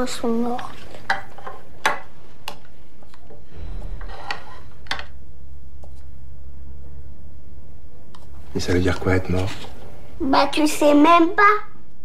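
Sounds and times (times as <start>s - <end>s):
steady low hum: 0.2s - 12.0s.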